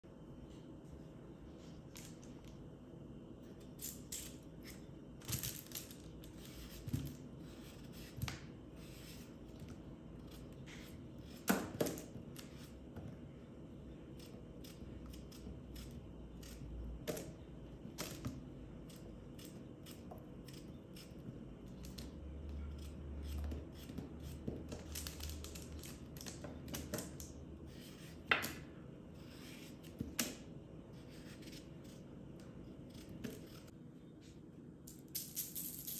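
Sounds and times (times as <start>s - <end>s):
knife cutting raw potatoes: 14.1s - 17.3s, 29.2s - 33.7s.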